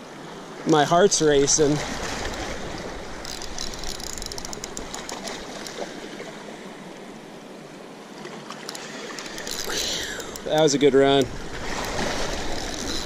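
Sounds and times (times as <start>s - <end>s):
river water rushing: 0.0s - 13.0s
faint rapid ticks: 3.2s - 5.9s, 8.6s - 13.0s.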